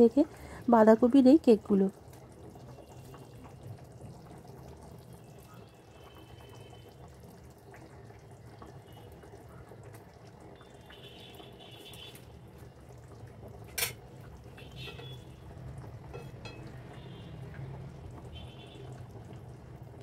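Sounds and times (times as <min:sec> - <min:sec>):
gravy bubbling and popping: 0:00.0 - 0:20.0.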